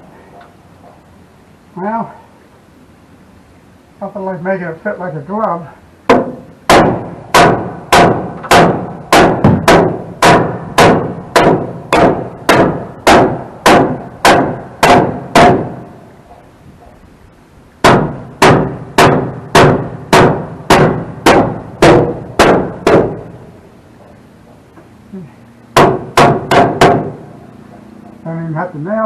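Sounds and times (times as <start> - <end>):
hammer driving nails into wood: 6.1 - 15.9, 17.8 - 23.2, 25.8 - 27.2.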